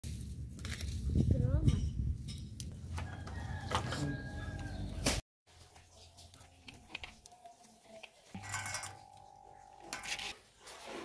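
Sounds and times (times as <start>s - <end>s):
rooster crowing: 3.0s - 4.9s.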